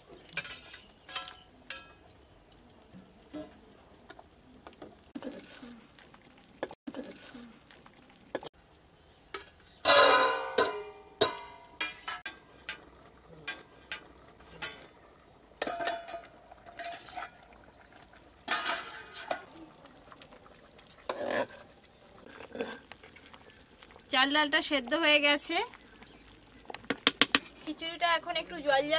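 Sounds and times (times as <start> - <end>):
metal spoon stirring in pot: 0.2 - 2.2, 9.3 - 15.0, 15.6 - 17.8, 18.5 - 20.2, 20.8 - 24.0
metal lid clanking on pot: 9.3 - 14.9, 15.6 - 17.4, 18.5 - 19.5.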